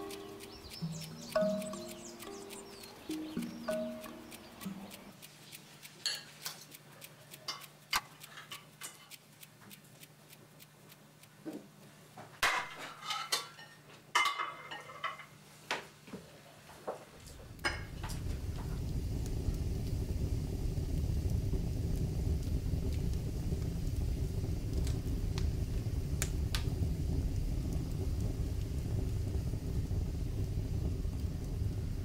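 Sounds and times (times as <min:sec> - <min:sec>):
cutlery clinking on plates: 0:06.0 - 0:06.7, 0:08.3 - 0:09.2, 0:12.4 - 0:15.4
low rumble: 0:17.3 - 0:32.0.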